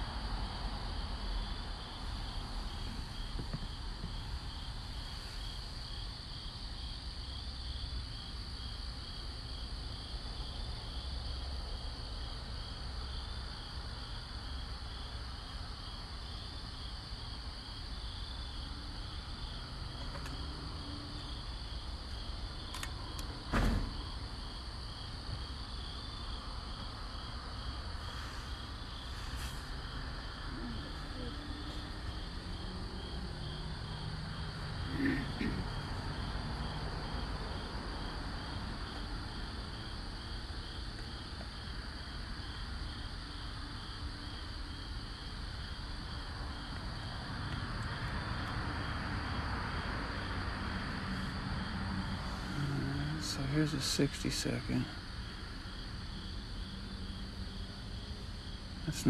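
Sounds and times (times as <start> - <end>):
cricket chirping in pulses: 0.0 - 59.0
cricket trilling: 0.0 - 59.0
thump: 23.5 - 24.0.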